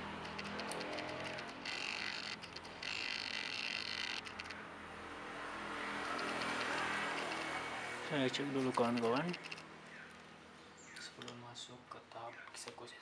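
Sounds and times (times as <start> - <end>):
small clicks: 0.2 - 4.6, 6.0 - 7.6, 8.6 - 10.2.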